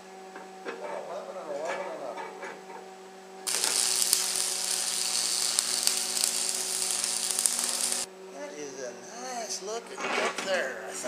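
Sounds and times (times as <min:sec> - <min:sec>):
welding arc crackling and hissing: 0:03.5 - 0:08.1.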